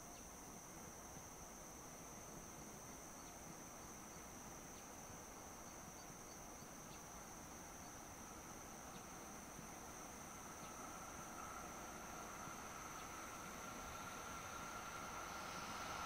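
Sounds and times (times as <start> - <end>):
high-pitched insect trill: 0.0 - 16.0
quiet outdoor ambience: 0.0 - 16.0
faint ticks: 8.8 - 9.2.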